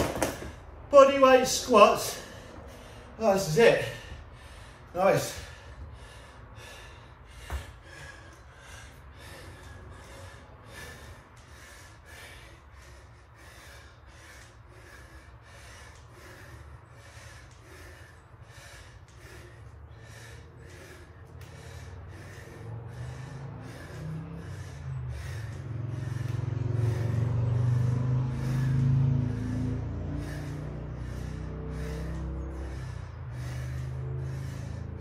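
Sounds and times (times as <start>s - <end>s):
man breathing hard: 0.0s - 35.0s
low rumble: 2.0s - 35.0s.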